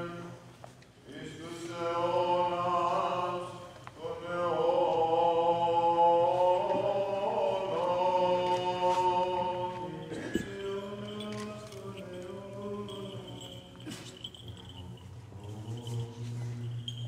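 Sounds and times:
men chanting in long notes: 1.1 - 17.0.

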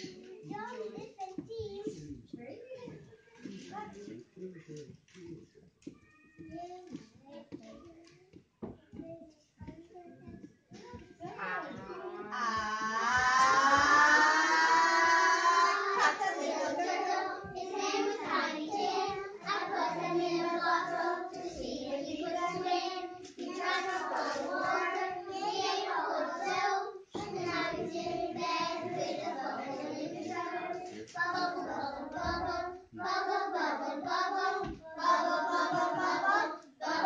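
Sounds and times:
young children singing: 11.3 - 37.0.

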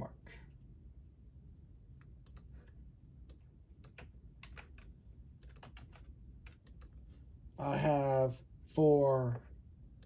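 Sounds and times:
computer keyboard keystrokes: 2.0 - 7.0.

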